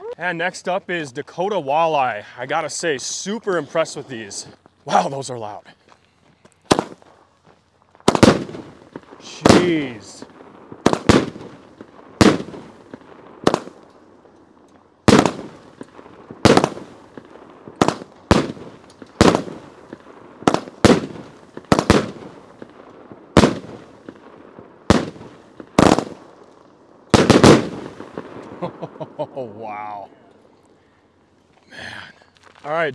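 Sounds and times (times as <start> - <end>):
firework cake loud sharp reports: 8.0 - 13.8, 15.1 - 26.3, 27.1 - 30.1.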